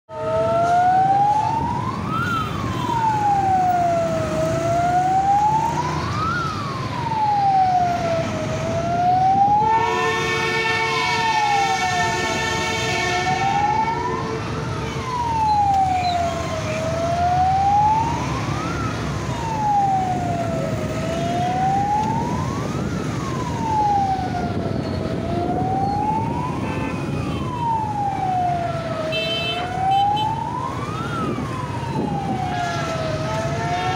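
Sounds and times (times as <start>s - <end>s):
fire engine siren wailing: 0.1s - 33.9s
street traffic rumble: 0.1s - 33.9s
long horn blast: 9.6s - 14.8s.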